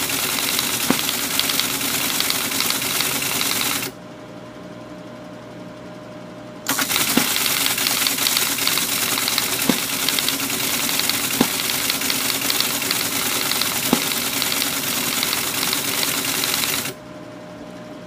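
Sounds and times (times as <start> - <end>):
teletype printing clatter: 0.0 - 4.0, 6.7 - 17.0.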